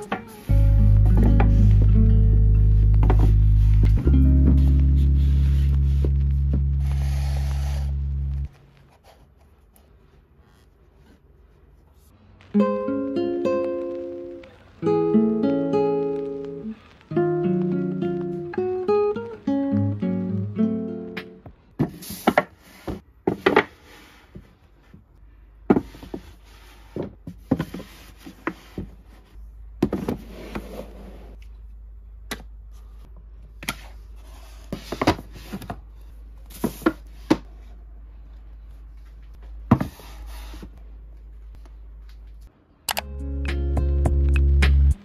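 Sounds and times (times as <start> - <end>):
books tapping and sliding on shelf: 21.8 - 31.2, 33.6 - 35.8, 36.5 - 37.7, 39.4 - 40.8.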